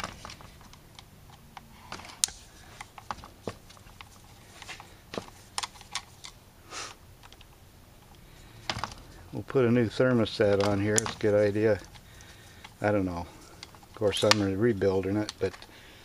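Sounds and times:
screwdriver metal clicks and scrapes: 0:00.2 - 0:06.4, 0:13.4 - 0:14.6.

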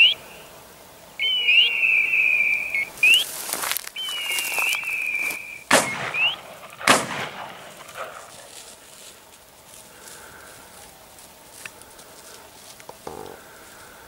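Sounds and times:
whistle-like tone with rising chirp: 0:01.2 - 0:06.5
shotgun shots: 0:05.7 - 0:08.6.

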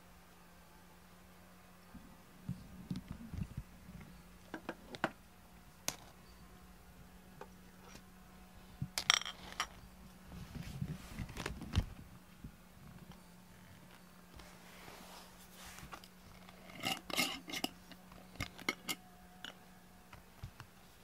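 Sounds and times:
steady low hum: 0:00.0 - 0:21.0
glass jars and metal lids clinking: 0:16.6 - 0:17.8, 0:18.5 - 0:19.6.

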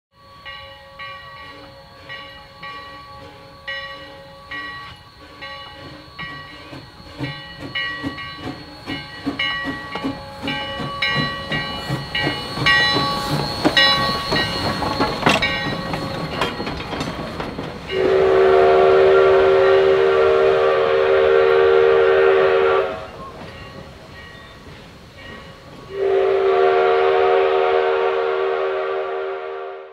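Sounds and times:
locomotive bell ringing: 0:00.1 - 0:20.4, 0:22.0 - 0:26.2
steam locomotive chuffing: 0:00.2 - 0:29.8
steam whistle blast: 0:17.9 - 0:23.4, 0:25.9 - 0:29.9.

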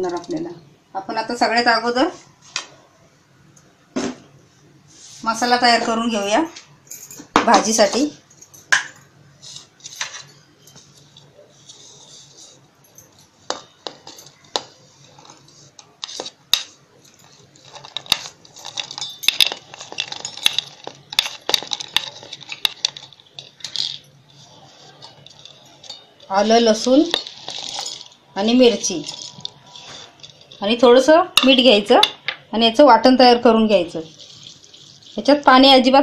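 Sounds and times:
food pieces clinking in steel jar: 0:13.5 - 0:32.2, 0:34.0 - 0:35.5.

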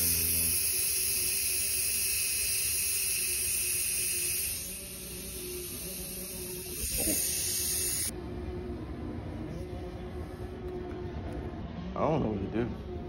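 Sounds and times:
air hissing from tire valve: 0:00.0 - 0:08.1.

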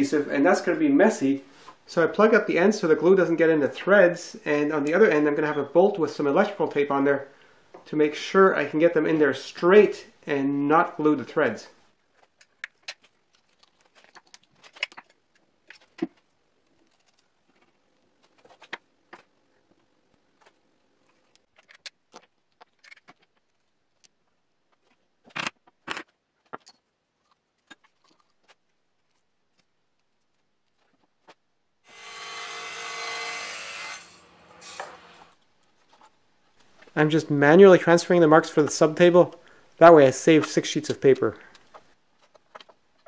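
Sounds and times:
table saw cutting plywood: 0:31.9 - 0:35.3.

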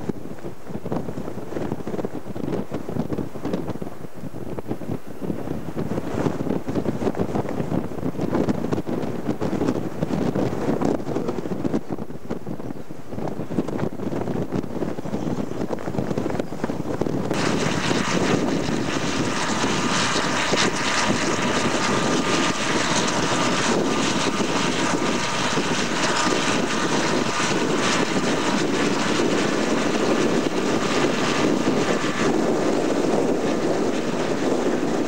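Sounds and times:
tractor diesel engine under load: 0:17.4 - 0:35.0.

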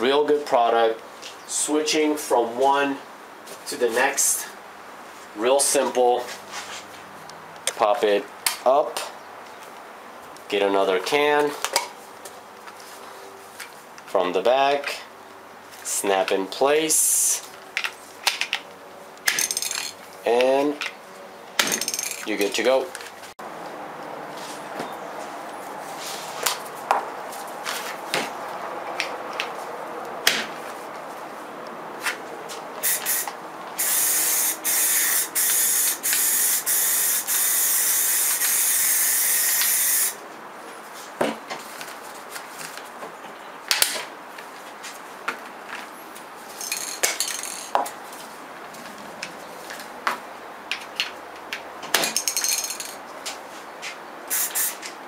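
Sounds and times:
spray can shaken: 0:32.8 - 0:38.7, 0:54.3 - 0:54.8
spray paint hiss: 0:32.8 - 0:40.2, 0:54.3 - 0:54.9.

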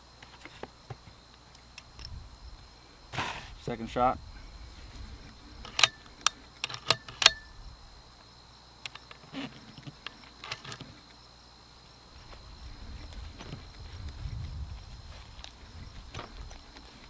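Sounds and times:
insect trill: 0:00.0 - 0:17.0
rifle bolt clicks: 0:05.6 - 0:07.5.

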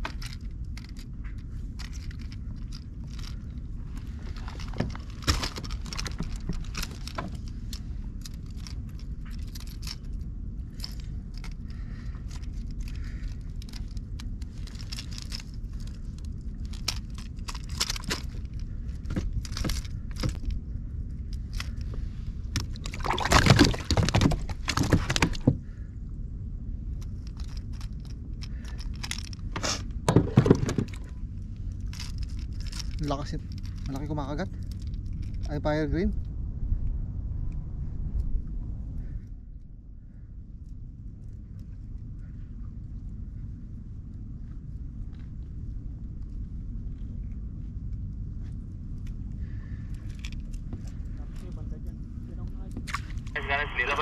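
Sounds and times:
low steady rumble: 0:00.0 - 0:54.0
fishing gear clicks and taps: 0:10.8 - 0:20.6.

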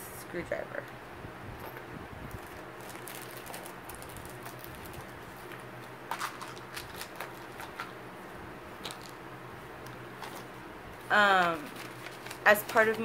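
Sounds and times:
steady low hum: 0:00.0 - 0:13.0
small items clicking and rustling: 0:01.6 - 0:08.0, 0:08.8 - 0:09.2, 0:09.8 - 0:10.5, 0:11.1 - 0:13.0.

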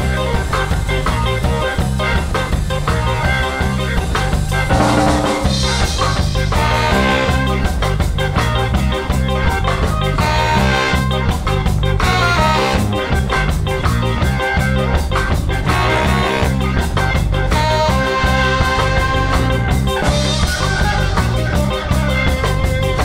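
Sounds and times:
bass and drums groove: 0:00.0 - 0:23.0
keyboard and guitar: 0:00.0 - 0:23.0
trumpet playing lead line: 0:04.7 - 0:08.0, 0:09.7 - 0:23.0.

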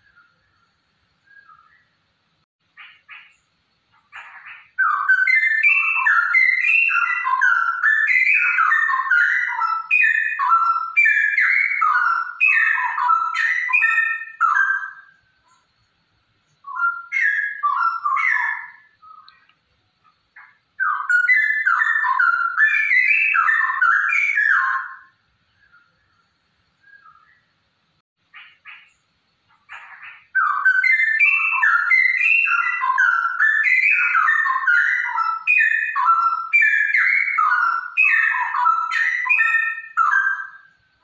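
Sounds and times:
bird singing whistled phrases: 0:01.2 - 0:01.9, 0:04.2 - 0:15.2, 0:16.6 - 0:19.5, 0:20.8 - 0:25.9, 0:26.8 - 0:27.5, 0:29.7 - 0:40.8.

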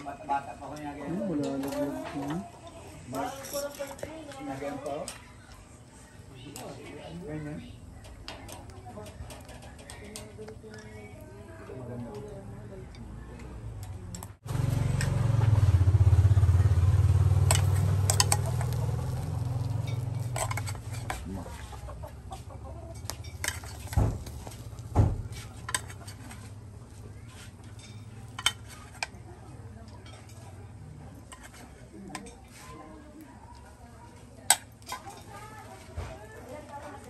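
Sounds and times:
metal spoon scraping a saucepan: 0:17.5 - 0:21.8, 0:23.0 - 0:24.0, 0:25.3 - 0:26.6, 0:31.2 - 0:32.7.

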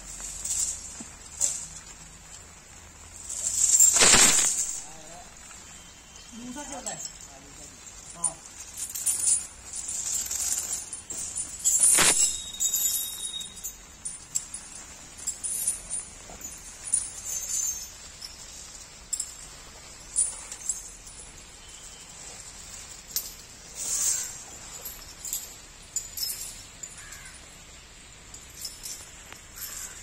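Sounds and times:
leaves rustling: 0:00.0 - 0:30.0
leg chains clinking: 0:00.0 - 0:30.0
crows cawing: 0:27.0 - 0:27.4, 0:29.6 - 0:30.0.

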